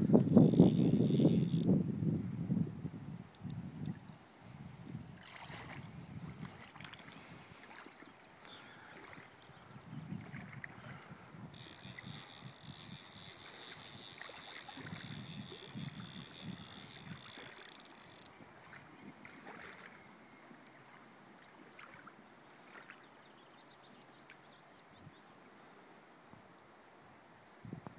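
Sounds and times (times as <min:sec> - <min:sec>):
wind buffeting microphone: 0:00.0 - 0:07.6, 0:09.5 - 0:17.6
flowing river water: 0:03.8 - 0:26.1.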